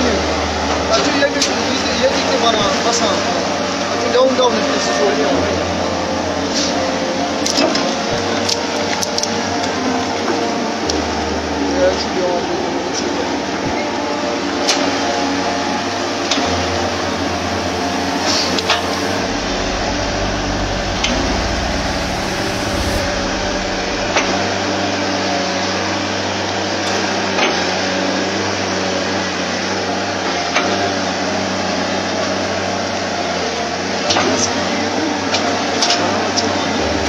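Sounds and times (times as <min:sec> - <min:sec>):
excavator diesel engine rumbling: 0:15.9 - 0:24.8.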